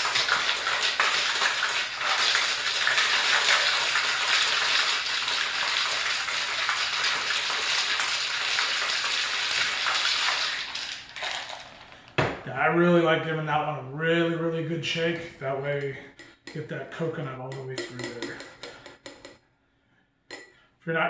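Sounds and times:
ice rattling in cocktail shaker: 0.0 - 12.0.

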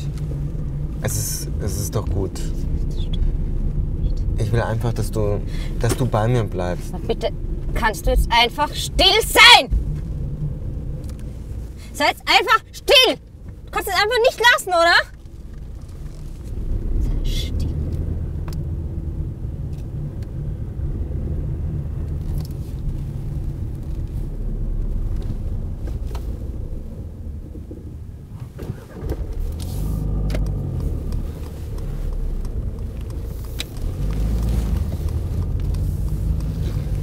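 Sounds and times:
car engine and road rumble: 0.0 - 37.0
faint clicks: 29.0 - 37.0.

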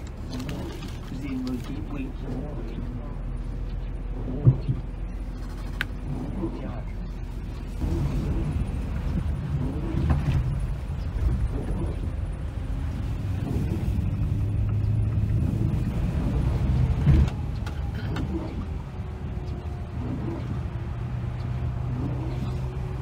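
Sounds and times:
coach engine and tyre rumble: 0.0 - 23.0
knocks and thump: 4.4 - 5.0.

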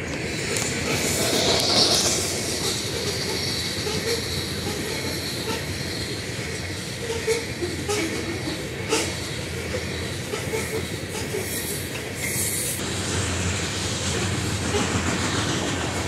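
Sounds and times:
clacks at rail joints: 0.0 - 5.7
steel wheels rumbling on rail: 0.0 - 16.0.

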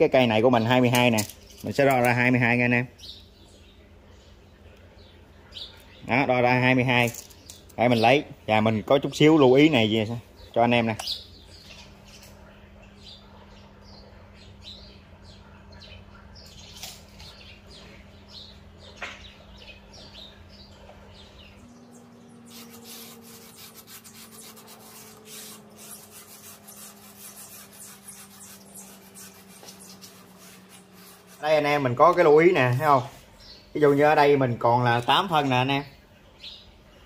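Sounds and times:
low steady hum: 0.0 - 37.0
small birds chirping: 0.0 - 37.0
soft scratching and rubbing: 22.5 - 32.2.

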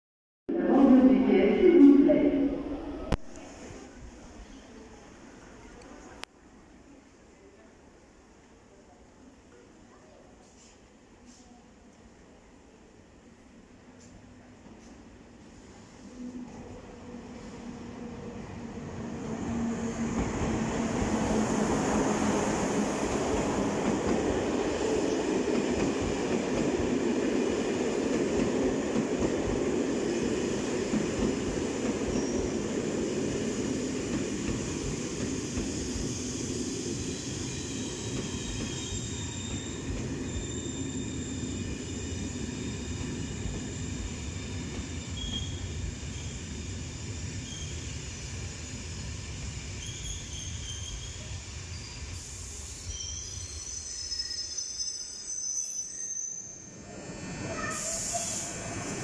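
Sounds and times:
train rumbling on rails: 14.5 - 53.7, 56.7 - 59.0
brake and wheel squeals: 45.2 - 46.4, 49.8 - 52.1, 52.8 - 56.8.

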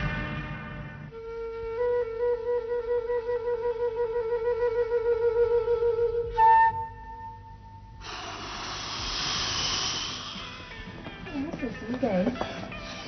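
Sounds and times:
flute playing notes: 0.8 - 8.0
breathy rush of blown air: 7.9 - 10.8.

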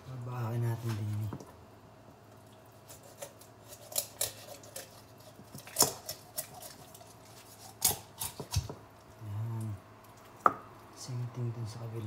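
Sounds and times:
knife chopping on wooden board: 7.8 - 8.8.

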